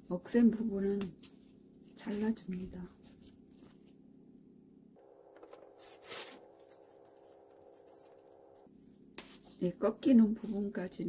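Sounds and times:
rustling of leaves and stems: 0:00.8 - 0:04.0, 0:05.7 - 0:08.2.

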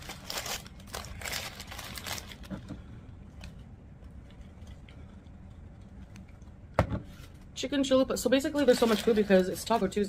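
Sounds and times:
paper wrapper crinkling: 0:00.0 - 0:02.5, 0:08.5 - 0:10.0
low steady hum: 0:00.0 - 0:10.0.

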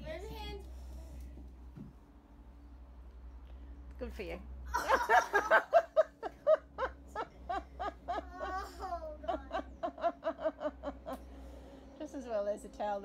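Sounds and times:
girls laughing: 0:04.7 - 0:11.3.

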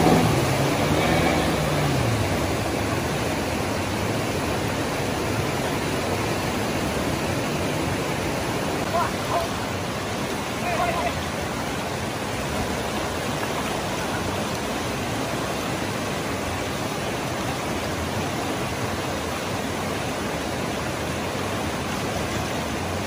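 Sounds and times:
river rapids rushing: 0:00.0 - 0:23.0.

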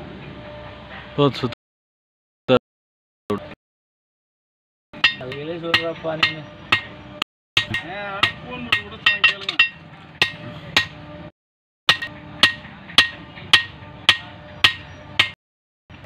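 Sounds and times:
hammer striking metal on anvil: 0:05.0 - 0:07.0, 0:07.6 - 0:11.0, 0:11.9 - 0:15.4.

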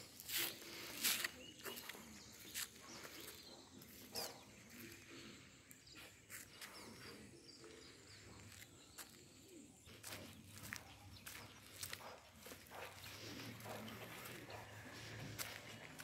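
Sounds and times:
birds calling: 0:00.0 - 0:16.0
soft footsteps on grass: 0:00.0 - 0:16.0
dove cooing: 0:12.4 - 0:16.0.

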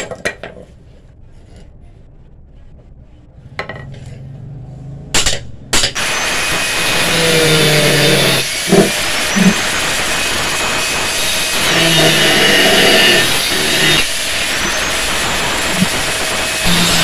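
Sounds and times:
angle grinder grinding steel: 0:06.0 - 0:17.0.

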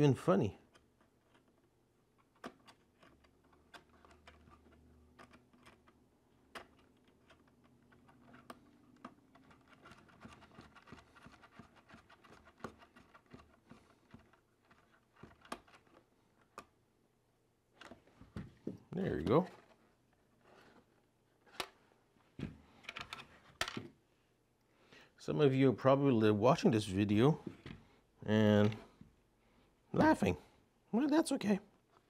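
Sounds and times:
small plastic parts clicking: 0:00.6 - 0:16.8.

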